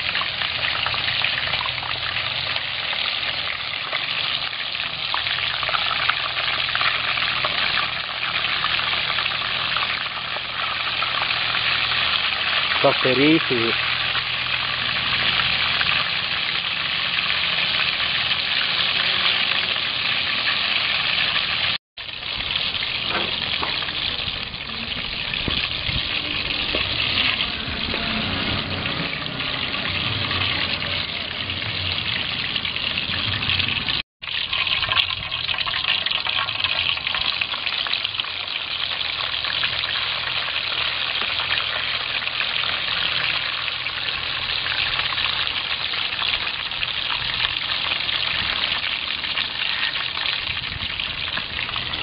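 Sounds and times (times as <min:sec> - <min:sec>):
hot oil sizzling and bubbling: 0:00.0 - 0:52.0.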